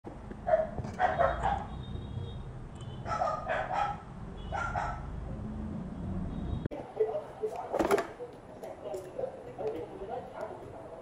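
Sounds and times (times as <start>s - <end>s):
dog barking: 0.4s - 1.8s, 3.0s - 5.2s.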